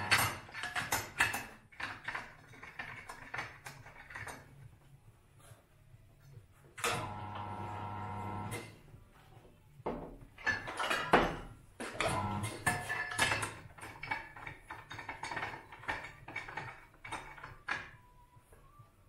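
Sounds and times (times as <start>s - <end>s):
metal adapters clanking and rattling: 0.0s - 4.7s, 10.3s - 18.0s.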